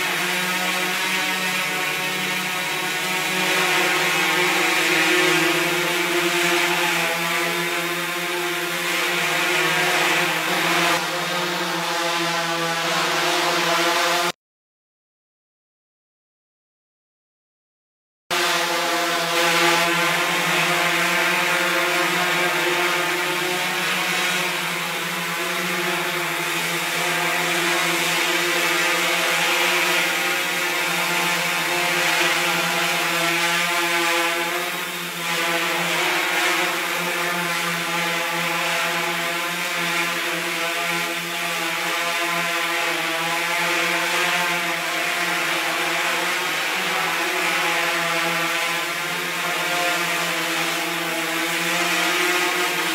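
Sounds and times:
drone propellers buzzing: 0.0s - 14.3s, 18.3s - 52.9s.

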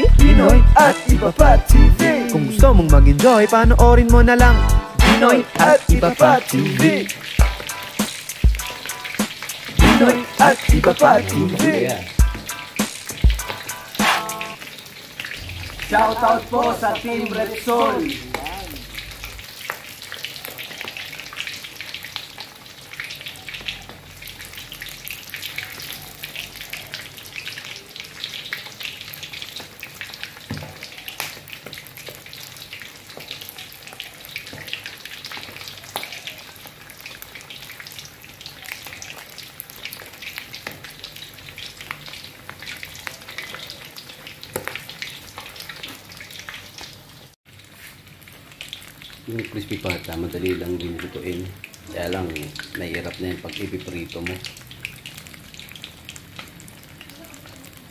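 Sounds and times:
meat sizzling in hot oil: 4.9s - 57.9s
oil crackling and popping: 5.1s - 11.1s, 18.3s - 57.9s.

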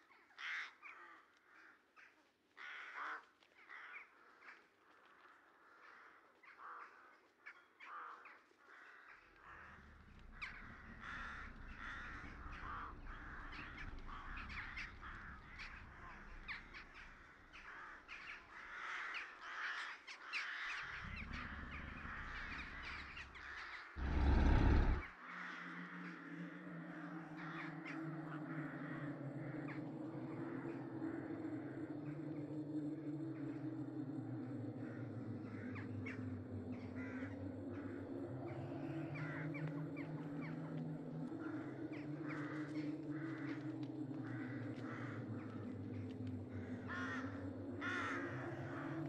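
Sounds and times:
crows cawing: 0.4s - 1.8s, 2.6s - 4.6s, 5.6s - 7.2s, 7.8s - 29.8s, 37.0s - 38.0s, 41.3s - 49.0s
low rumble: 20.8s - 25.1s
steady low hum: 20.8s - 25.1s
loud rumbling burst: 24.0s - 25.0s.

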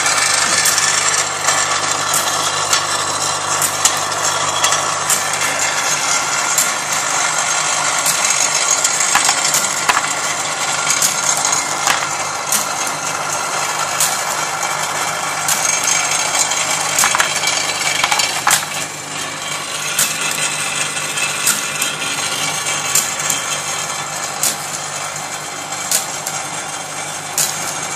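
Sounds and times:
continuous rattle: 0.0s - 27.9s
electric motor hum: 0.0s - 27.9s
sharp mechanical clicks: 15.4s - 18.8s, 19.9s - 22.1s.

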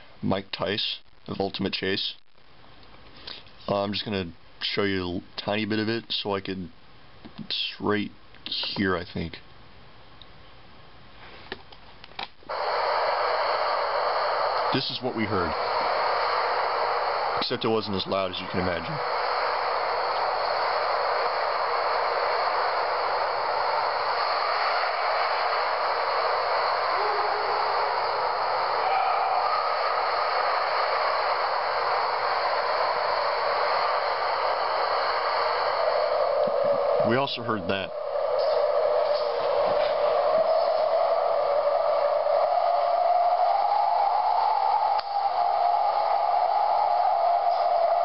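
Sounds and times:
strong wind rushing: 12.5s - 48.0s.

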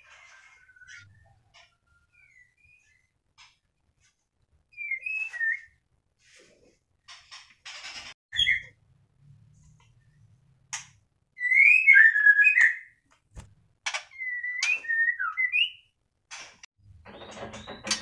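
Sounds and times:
bird singing whistled phrases: 4.8s - 5.8s, 11.4s - 12.9s, 14.2s - 15.8s.

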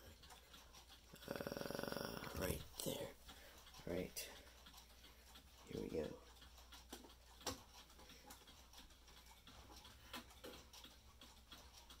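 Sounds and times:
mantel clock ticking: 0.0s - 12.0s
clock bezel clicks and knocks: 2.2s - 12.0s.

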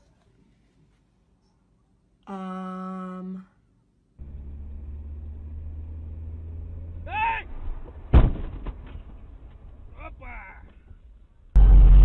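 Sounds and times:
vehicle engine humming: 4.2s - 8.1s, 11.5s - 12.0s
collision crash: 7.5s - 9.9s.

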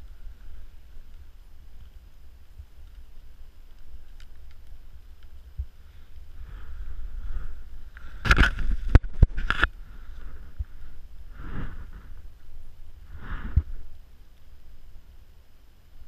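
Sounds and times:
soft rushes of sound: 9.8s - 14.1s.

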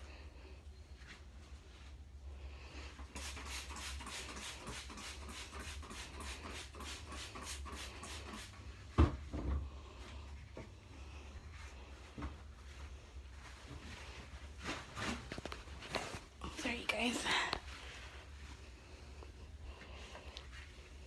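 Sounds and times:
brush swishing in toilet bowl: 2.7s - 8.9s.

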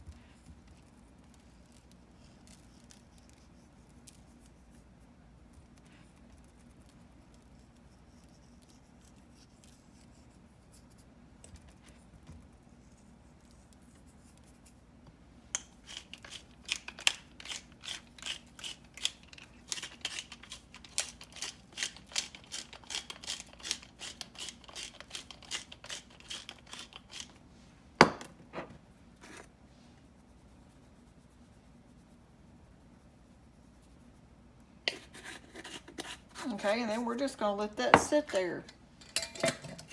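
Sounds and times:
pepper mill grinding clicks: 15.6s - 27.3s.

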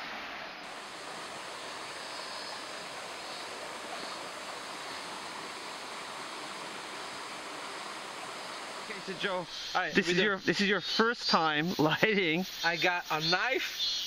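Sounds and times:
stream rushing over rocks: 0.0s - 10.7s.

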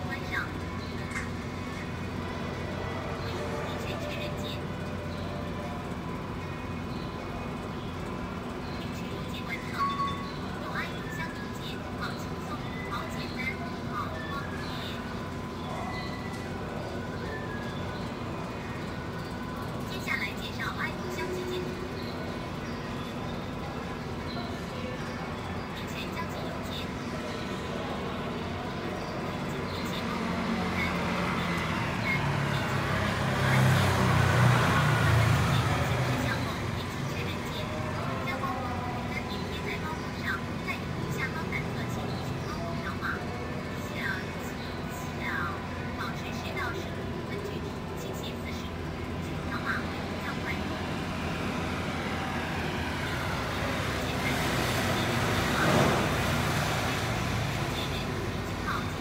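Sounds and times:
road traffic rumble: 0.0s - 59.0s
vehicle passing: 27.2s - 43.8s, 45.4s - 59.0s.

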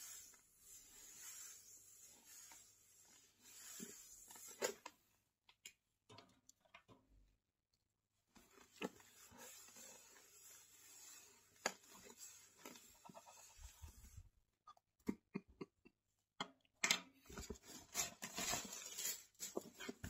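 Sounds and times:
scratching cardboard box: 17.6s - 20.0s.

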